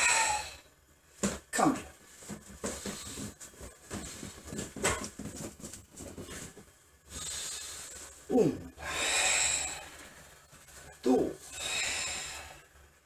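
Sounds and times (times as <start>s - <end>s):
forceful hissing breath: 0.0s - 0.7s, 7.1s - 10.4s, 11.4s - 12.8s
knocks and rustles of movement: 1.1s - 8.8s
person grunting: 8.3s - 8.8s, 11.0s - 11.4s.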